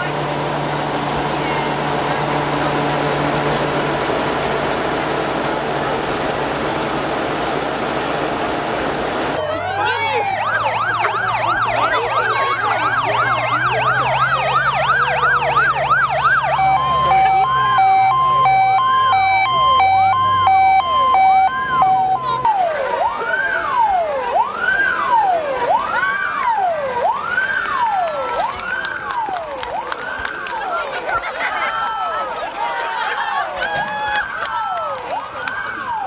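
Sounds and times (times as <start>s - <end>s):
truck engine running: 0.0s - 36.0s
two-tone siren: 9.4s - 30.4s, 34.3s - 36.0s
siren wail: 9.4s - 30.8s, 33.6s - 36.0s
siren yelp: 9.4s - 30.8s, 33.6s - 36.0s.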